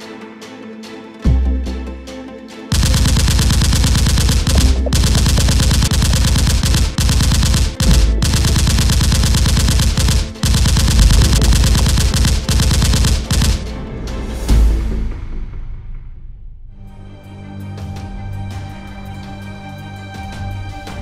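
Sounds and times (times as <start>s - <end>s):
machine-gun fire: 2.7s - 13.8s.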